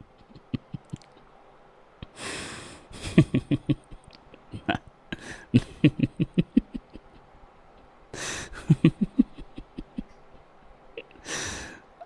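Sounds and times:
person laughing hard: 0:00.2 - 0:01.1, 0:02.9 - 0:07.3, 0:08.2 - 0:10.2
breathy gasp: 0:05.2 - 0:05.5, 0:11.2 - 0:11.8.

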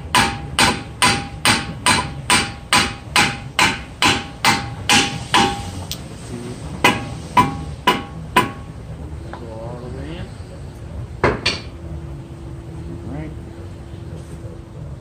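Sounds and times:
hammer striking metal shaft: 0:00.0 - 0:06.0, 0:06.8 - 0:08.8.

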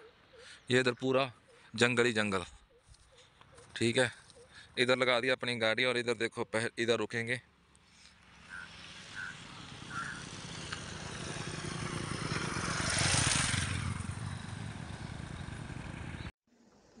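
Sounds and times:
vehicle passing on road: 0:07.8 - 0:16.3.

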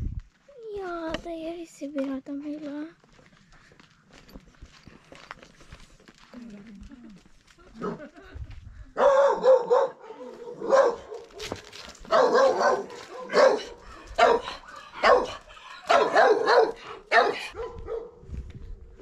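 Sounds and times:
dog barking: 0:09.0 - 0:18.2.

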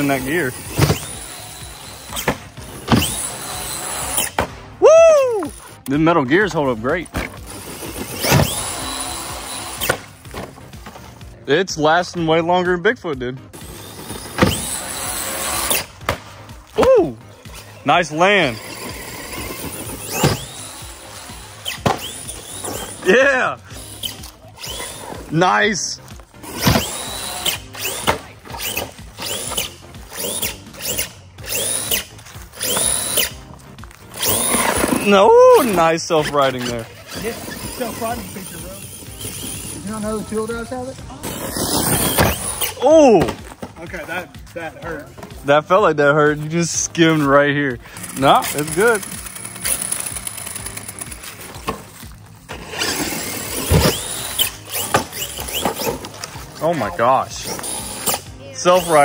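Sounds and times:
electric motor whining: 0:00.0 - 0:04.4, 0:07.2 - 0:10.5, 0:13.5 - 0:16.0, 0:16.8 - 0:43.3, 0:47.0 - 0:59.0.

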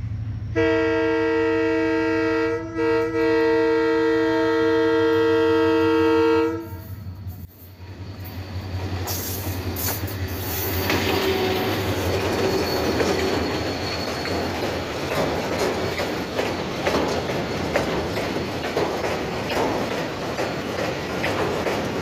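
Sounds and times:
locomotive horn blast: 0:00.5 - 0:07.2
locomotive engine passing: 0:03.0 - 0:22.0
wheels clattering on rails: 0:07.4 - 0:22.0.

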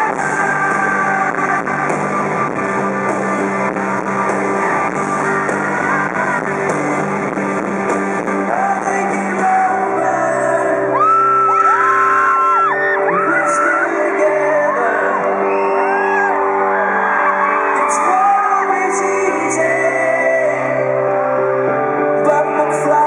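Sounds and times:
drums: 0:00.0 - 0:16.5
man singing lead vocal: 0:00.0 - 0:16.5, 0:17.2 - 0:23.0
crowd screaming: 0:00.0 - 0:21.8
electric guitar: 0:00.0 - 0:23.0.

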